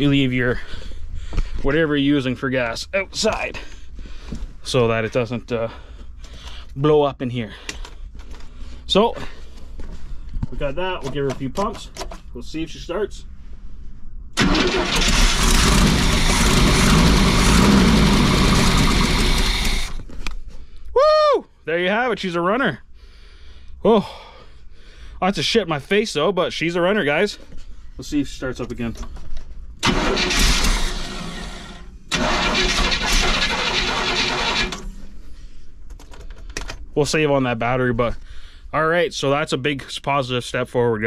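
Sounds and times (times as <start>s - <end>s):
gasoline engine starting and running: 14.4s - 20.1s, 29.8s - 35.2s.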